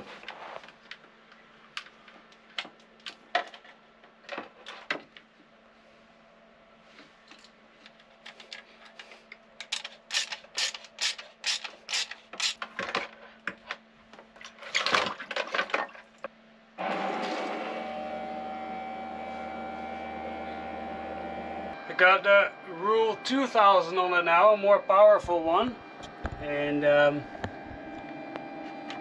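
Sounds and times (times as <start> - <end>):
pump and hose rattling: 7.2 - 16.3
electric pump humming: 16.2 - 29.0.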